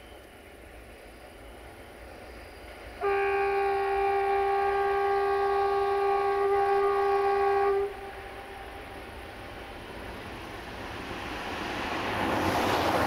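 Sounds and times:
locomotive air horn blast: 0:03.0 - 0:08.7.

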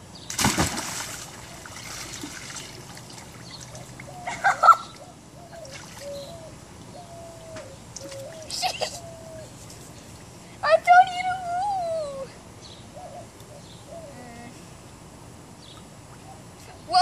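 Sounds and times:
loud splash into a metal tub: 0:00.3 - 0:03.3
water sloshing and dripping: 0:00.3 - 0:04.1.

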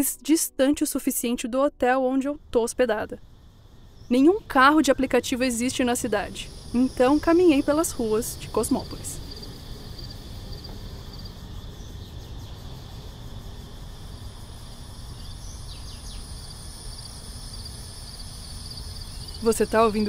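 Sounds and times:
cicadas buzzing: 0:02.2 - 0:20.0.

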